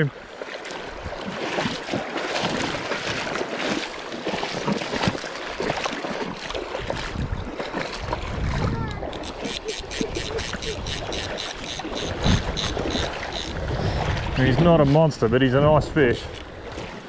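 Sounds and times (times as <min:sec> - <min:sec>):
river water rushing: 0:00.0 - 0:08.4
water splashing: 0:00.0 - 0:17.0
wind buffeting microphone: 0:04.6 - 0:17.0.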